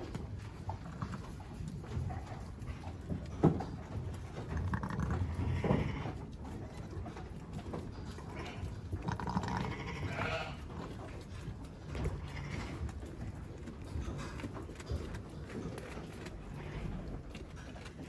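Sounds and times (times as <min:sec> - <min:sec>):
sheep bleating: 0:08.4 - 0:10.7, 0:12.1 - 0:12.8.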